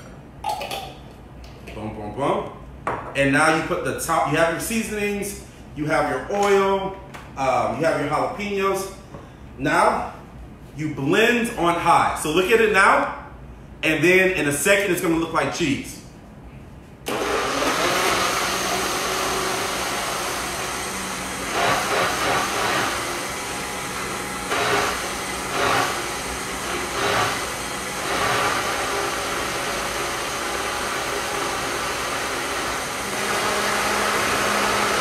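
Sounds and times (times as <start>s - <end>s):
blender motor running: 17.1s - 35.0s.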